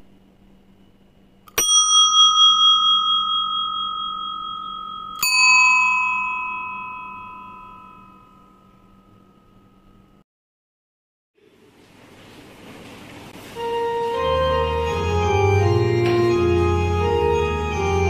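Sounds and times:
bell ringing: 1.5s - 10.2s.

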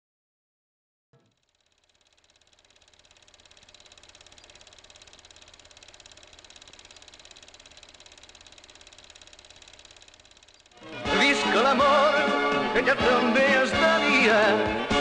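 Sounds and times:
film projector ticking clatter: 1.2s - 12.0s.

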